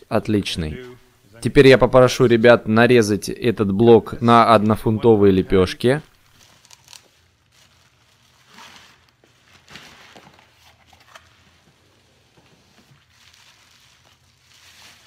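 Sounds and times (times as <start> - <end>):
plastic bag rustling: 6.1 - 15.0.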